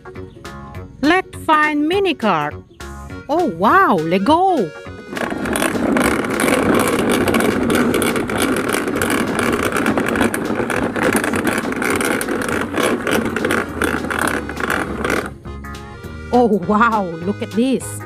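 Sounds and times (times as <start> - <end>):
plastic toy wheels rolling: 4.2 - 15.4.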